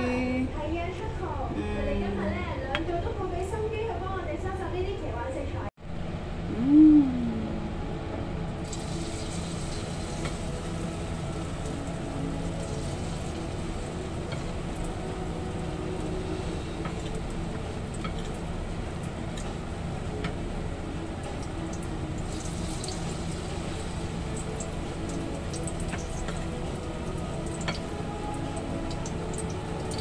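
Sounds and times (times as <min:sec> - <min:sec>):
low hum: 0:05.8 - 0:30.0
frying in hot oil: 0:08.6 - 0:30.0.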